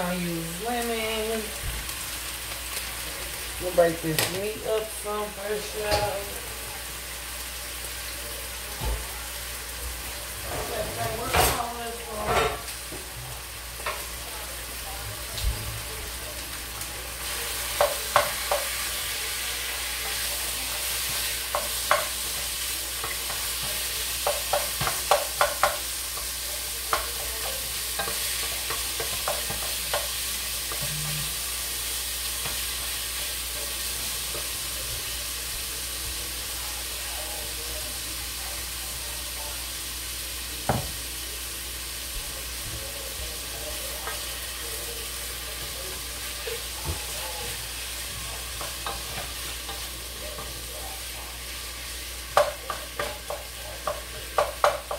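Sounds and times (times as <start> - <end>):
meat sizzling in a pot: 0.0 - 54.9
spoon knocking against pot: 24.2 - 25.8.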